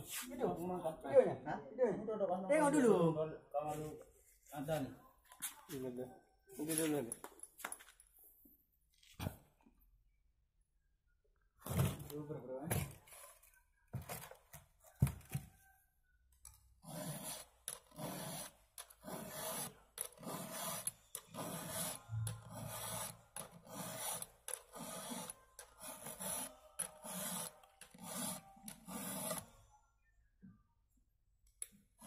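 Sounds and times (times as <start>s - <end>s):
file sharpening chainsaw chain: 16.8s - 29.5s.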